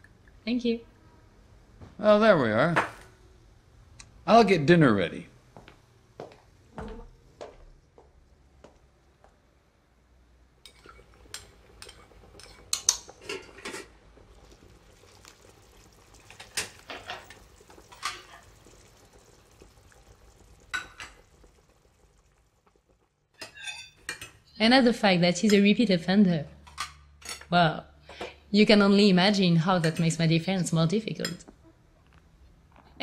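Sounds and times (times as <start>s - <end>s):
cutlery and plates clinking: 23.4s - 24.4s.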